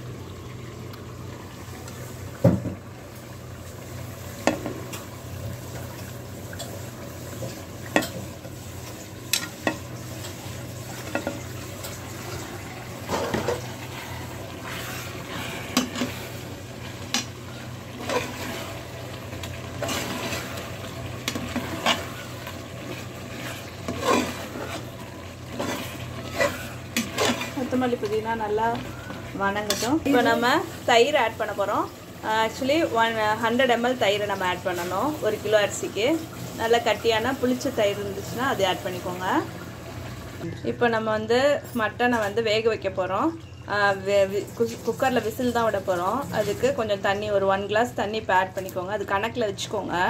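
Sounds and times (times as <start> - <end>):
metal ladle clinking and scraping pot: 19.4 - 28.2, 28.8 - 30.3.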